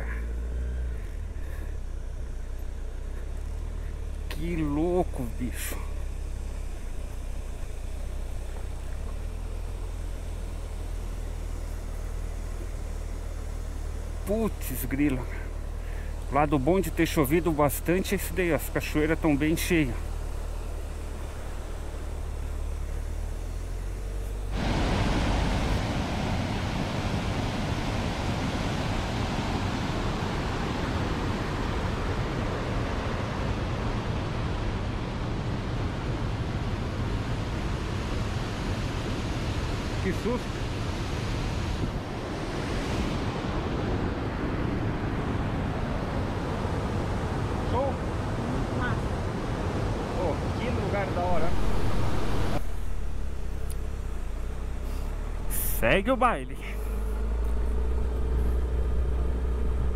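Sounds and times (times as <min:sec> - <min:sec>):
motorcycle engine rumbling: 0:00.0 - 0:25.9, 0:43.5 - 0:59.9
waterfall and rapids rushing: 0:24.5 - 0:52.8.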